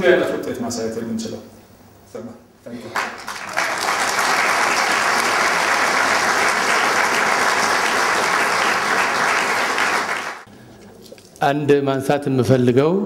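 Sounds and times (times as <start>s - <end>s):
large audience applauding: 2.9s - 10.5s.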